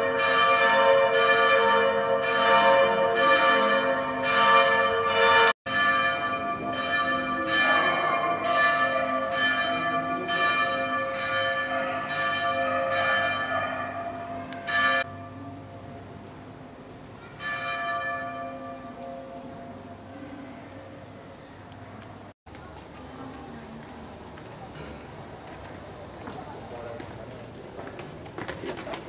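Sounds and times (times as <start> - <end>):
church bells ringing: 0.0 - 21.2.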